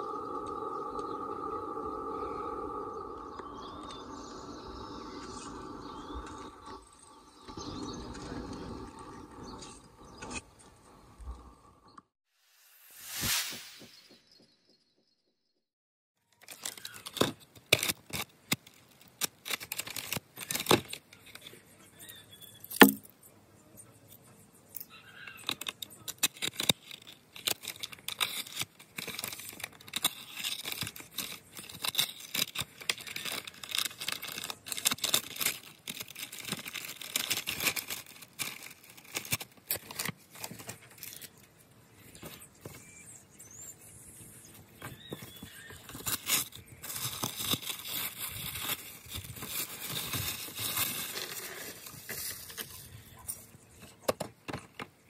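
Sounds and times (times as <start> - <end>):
packaging rustling and tearing: 16.4 - 21.5, 25.4 - 41.5, 45.7 - 52.8.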